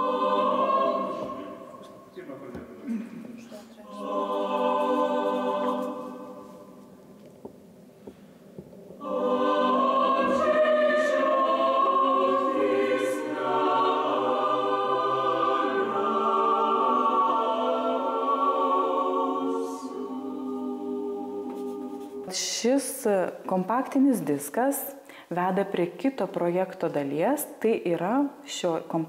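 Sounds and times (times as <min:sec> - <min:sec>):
choir singing a hymn: 0:00.0 - 0:02.7, 0:03.8 - 0:06.9, 0:09.0 - 0:22.4.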